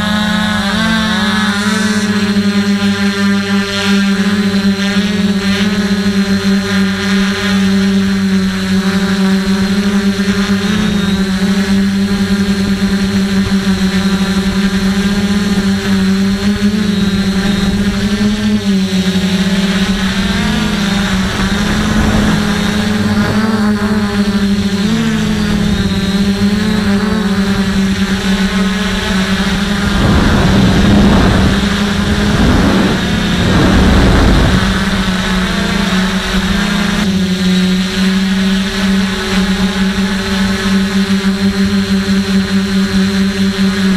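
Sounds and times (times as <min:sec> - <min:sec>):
drone propellers droning: 0:00.0 - 0:43.9
low rumbling noise: 0:14.7 - 0:37.3.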